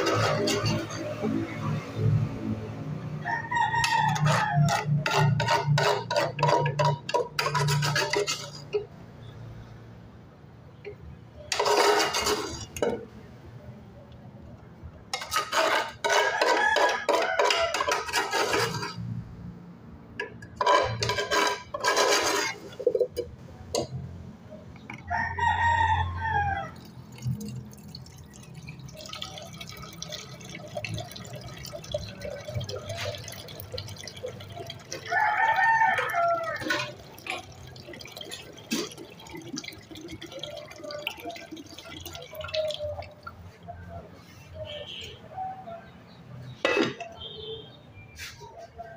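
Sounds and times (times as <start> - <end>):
metal spoon clinking dish: 0.0 - 1.3, 3.9 - 8.9
rooster crowing: 3.2 - 5.3, 16.2 - 17.9, 25.0 - 26.9, 35.0 - 36.9.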